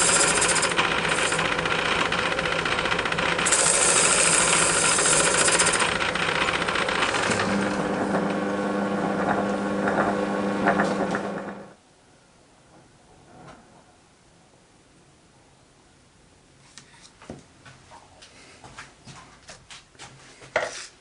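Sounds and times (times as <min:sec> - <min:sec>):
lathe cutting metal: 0:00.0 - 0:11.7.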